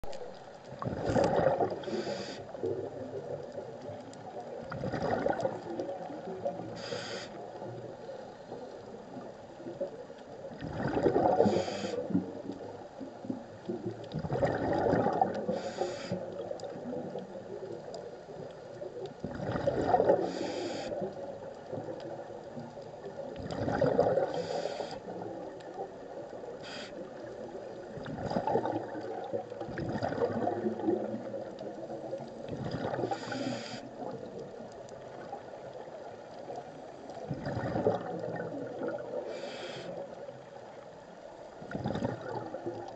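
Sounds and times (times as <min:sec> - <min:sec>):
exhaled bubbles underwater: 0:00.0 - 0:42.9
regulator hiss: 0:01.8 - 0:02.6, 0:06.8 - 0:07.5, 0:11.4 - 0:12.1, 0:15.5 - 0:16.2, 0:20.2 - 0:21.0, 0:24.3 - 0:25.0, 0:26.6 - 0:27.1, 0:33.1 - 0:33.9, 0:39.3 - 0:40.0.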